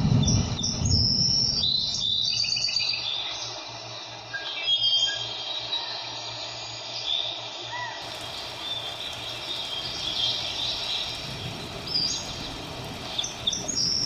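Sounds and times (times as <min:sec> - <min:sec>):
steady background hiss: 0:01.2 - 0:14.0
birds chirping: 0:07.3 - 0:14.0.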